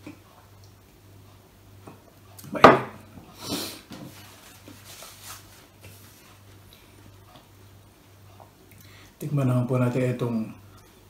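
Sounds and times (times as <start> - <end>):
glass mug knocking on table: 2.6 - 3.0
soft hissing rustling: 3.3 - 7.2.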